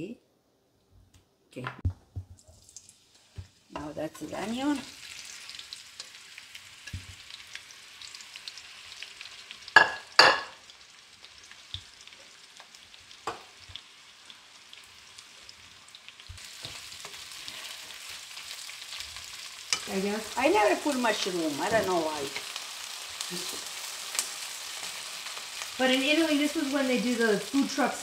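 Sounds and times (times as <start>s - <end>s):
onions sizzling in oil: 2.3s - 28.0s
wooden spatula stirring onions: 16.2s - 25.7s.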